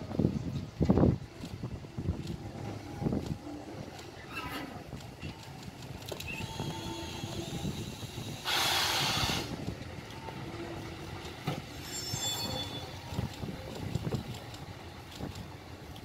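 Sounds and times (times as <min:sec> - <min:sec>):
train wheels rumbling on rail: 0:00.0 - 0:16.0
wheel squeal: 0:04.2 - 0:04.8, 0:06.2 - 0:09.6, 0:11.6 - 0:13.3
air hiss: 0:06.4 - 0:09.6.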